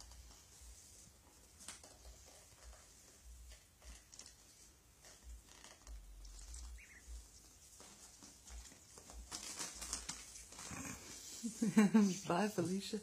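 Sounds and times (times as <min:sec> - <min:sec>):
ducklings pecking and shuffling: 0:00.0 - 0:12.6
duckling peep: 0:06.4 - 0:07.2.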